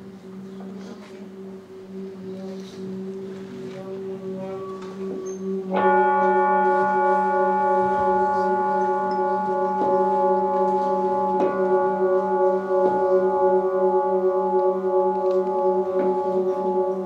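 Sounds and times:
singing bowls ringing: 0.0s - 17.0s
mallet striking bowl: 4.5s - 17.0s.

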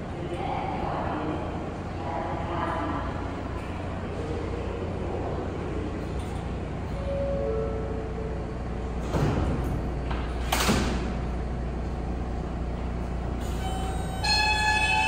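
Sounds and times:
subway doors sliding shut: 2.6s - 15.0s
traction motor whine: 11.8s - 15.0s.

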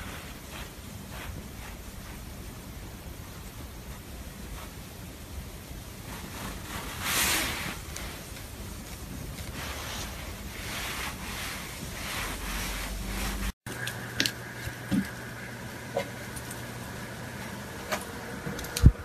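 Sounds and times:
hand rubbing cat fur: 0.0s - 5.1s, 6.0s - 13.6s
steady hiss: 0.0s - 19.0s.

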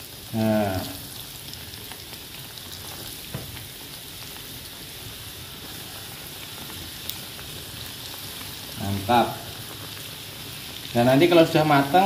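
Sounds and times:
oil sizzling and crackling: 0.0s - 12.0s.

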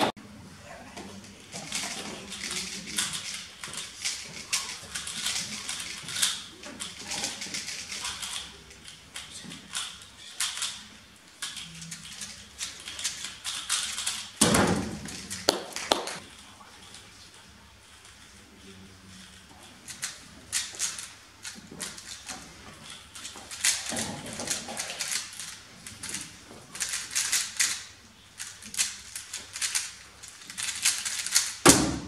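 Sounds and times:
puzzle cube clicking and clacking: 1.5s - 16.2s, 19.2s - 31.9s.

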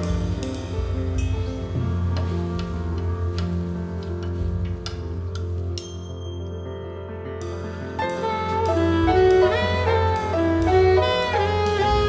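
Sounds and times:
soft piano chords: 0.0s - 12.0s.

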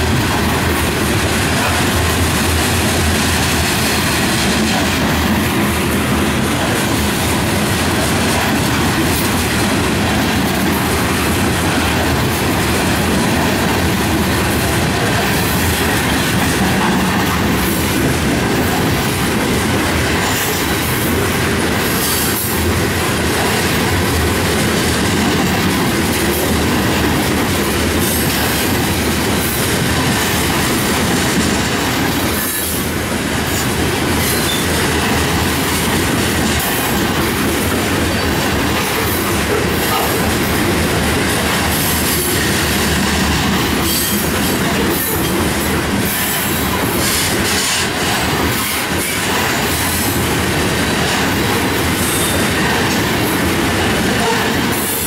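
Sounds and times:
clickety-clack over rail joints: 0.0s - 55.0s
train wheels rumbling on rails: 0.0s - 55.0s
high wheel squeal: 34.2s - 34.8s.

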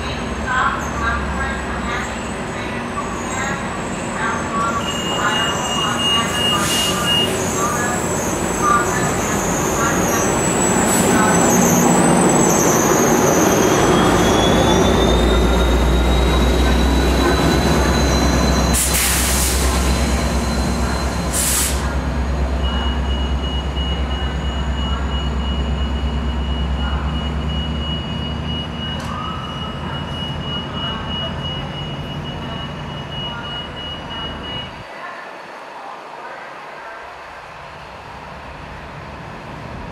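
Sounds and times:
train rumbling past: 0.0s - 33.2s
diesel locomotive droning: 0.0s - 35.1s
high beeping tone: 11.4s - 18.8s.

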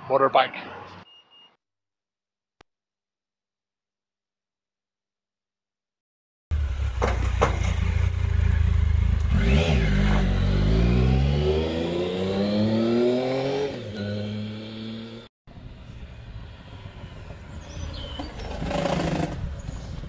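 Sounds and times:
motorcycle engine pulling away: 6.5s - 15.2s, 16.4s - 20.0s.

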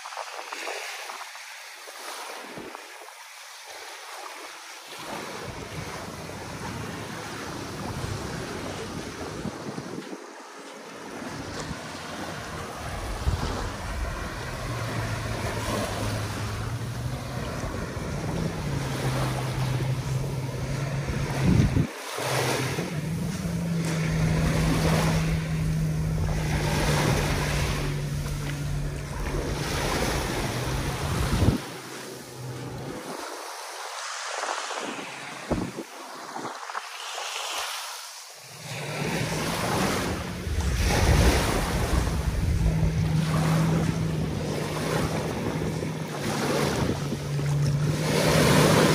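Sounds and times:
waves washing onto beach: 0.0s - 48.9s
wind buffeting microphone: 5.0s - 37.3s, 38.8s - 48.9s
low steady hum: 22.6s - 33.0s, 40.4s - 46.2s.

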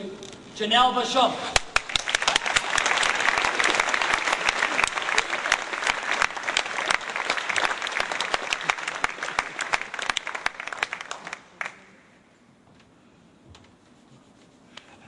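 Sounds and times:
audience applauding: 1.6s - 11.9s.

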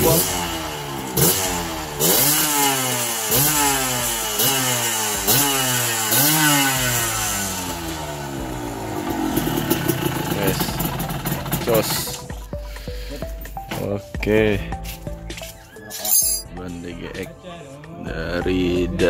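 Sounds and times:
two-stroke motorcycle engine revving: 0.0s - 12.3s.

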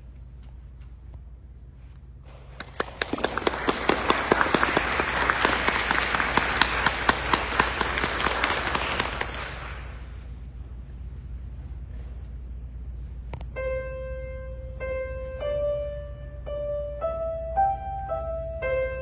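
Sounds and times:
audience applauding: 2.6s - 10.2s.

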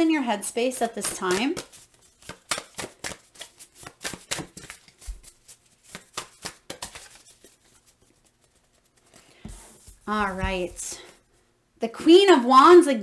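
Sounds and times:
cards being shuffled: 0.8s - 11.2s.

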